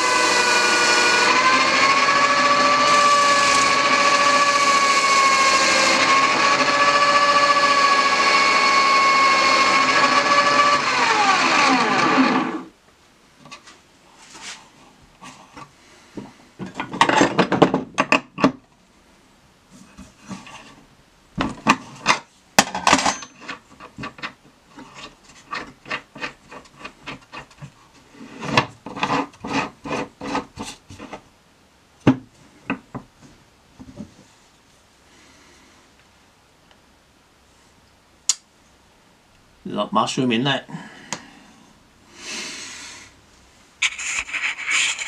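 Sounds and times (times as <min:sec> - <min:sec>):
scraping and rubbing on wood: 0:19.7 - 0:22.3, 0:22.9 - 0:31.3, 0:43.8 - 0:45.0.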